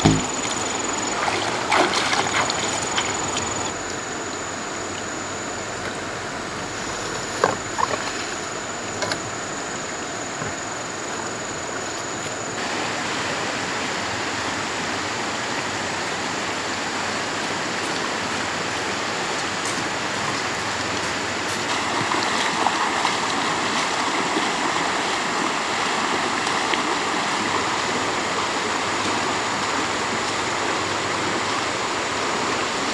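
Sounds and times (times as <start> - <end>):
sharp knocks: 0.0 - 0.7
running water rushing: 0.0 - 32.9.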